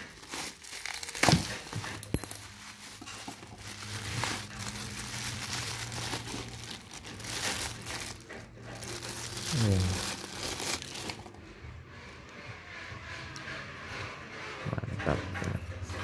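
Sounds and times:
bubble wrap crinkling and crackling: 0.0s - 11.5s.

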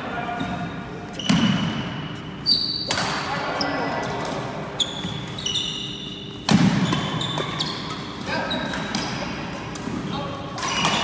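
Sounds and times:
shoes squeaking on wooden floor: 4.7s - 8.8s.

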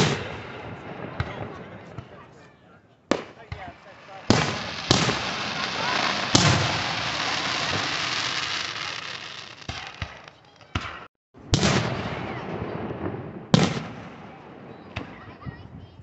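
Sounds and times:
fireworks bangs: 0.0s - 2.5s, 3.1s - 15.7s
fireworks crackling: 3.1s - 15.2s.

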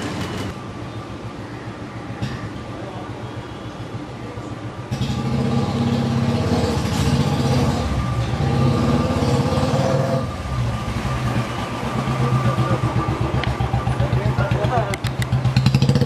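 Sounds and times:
motorcycle engine pulsing: 4.9s - 16.0s.

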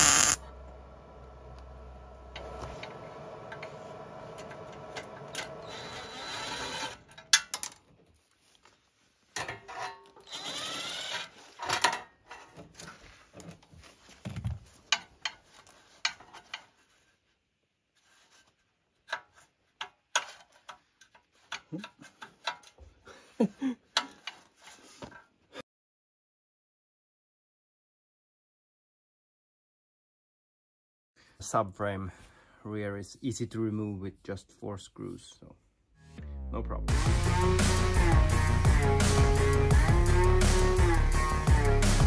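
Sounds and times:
mechanical running noise: 0.0s - 0.4s, 1.2s - 7.0s.

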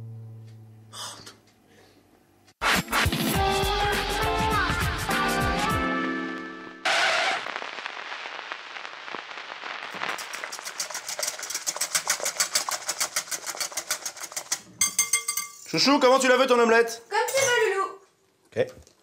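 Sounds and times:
fork beating eggs in glass bowl: 10.2s - 15.5s.

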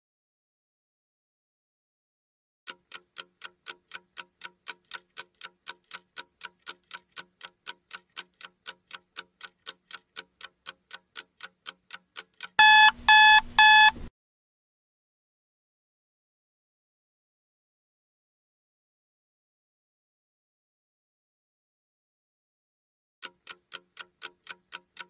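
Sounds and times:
clock ticking: 2.7s - 14.1s, 23.2s - 25.0s
loud alarm beeps: 12.6s - 14.0s.

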